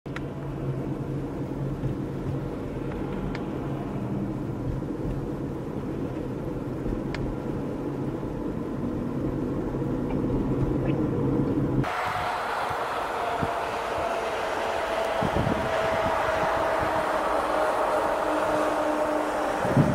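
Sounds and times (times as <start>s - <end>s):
wind noise: 11.7s - 19.9s
vehicle engine idling: 11.8s - 19.9s.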